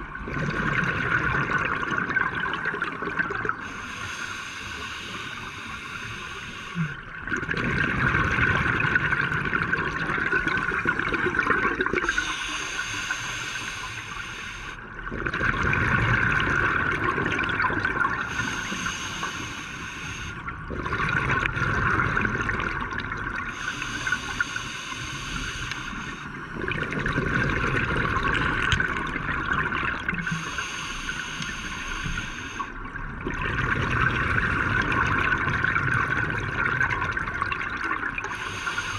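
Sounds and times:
gurgle of exhaled bubbles: 0:00.0 - 0:03.7, 0:06.8 - 0:12.3, 0:15.0 - 0:18.7, 0:20.4 - 0:24.4, 0:25.4 - 0:30.6, 0:32.1 - 0:38.9
regulator inhale hiss: 0:03.6 - 0:07.0, 0:12.0 - 0:14.9, 0:18.2 - 0:20.4, 0:23.5 - 0:26.5, 0:30.2 - 0:32.8, 0:38.3 - 0:38.9.

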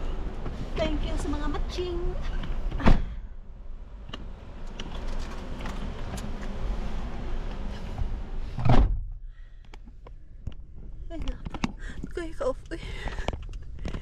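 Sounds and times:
car cabin low rumble: 0:00.0 - 0:14.0
car door shutting: 0:02.4 - 0:03.2, 0:08.5 - 0:09.1
small clicks and rustles: 0:04.6 - 0:06.6.

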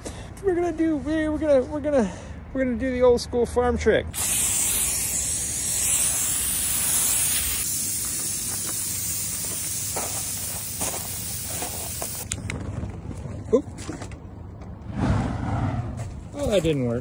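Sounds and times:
aerosol can spraying hiss: 0:04.2 - 0:12.3.

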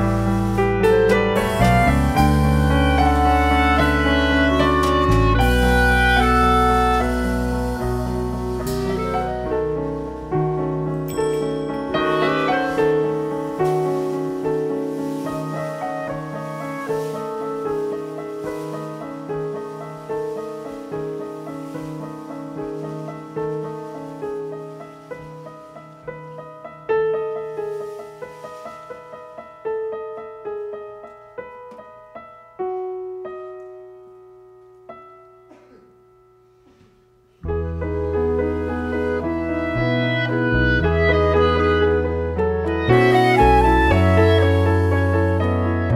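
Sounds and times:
bass guitar: 0:00.0 - 0:12.5, 0:37.4 - 0:45.9
piano chords: 0:00.0 - 0:45.9.

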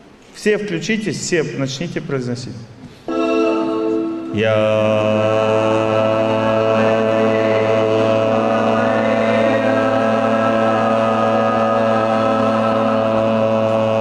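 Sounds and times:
background music: 0:03.1 - 0:14.0
group chanting one long note: 0:03.1 - 0:14.0.

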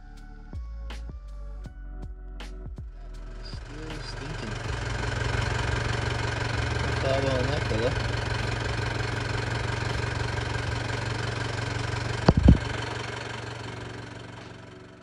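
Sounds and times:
vehicle engine idling: 0:02.8 - 0:15.0
sharp knocks: 0:12.2 - 0:12.7.

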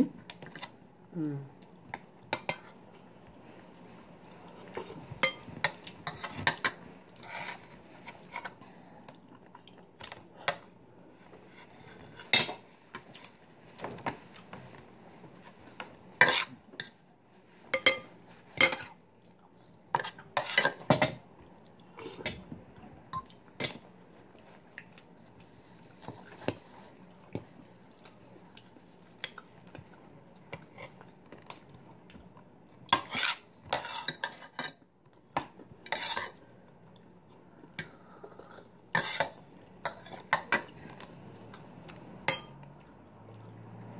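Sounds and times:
cutlery clinking on ceramic bowls: 0:05.2 - 0:06.8, 0:17.8 - 0:18.9, 0:42.2 - 0:42.7.

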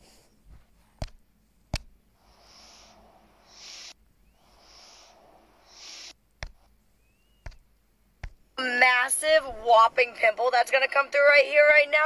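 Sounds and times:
soft breathing close to microphone: 0:00.0 - 0:01.0, 0:02.1 - 0:06.7
sharp clicks: 0:07.4 - 0:08.4.

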